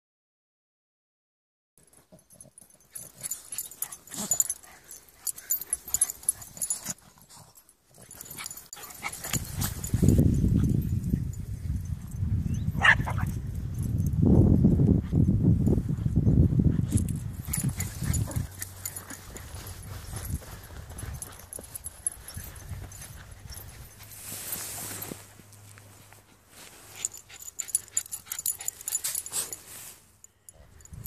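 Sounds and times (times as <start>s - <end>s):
dogs digging in sand: 1.8s - 12.0s, 14.8s - 31.0s
wind rumble on microphone: 9.0s - 24.5s, 30.6s - 31.0s
dog yip: 12.6s - 13.3s.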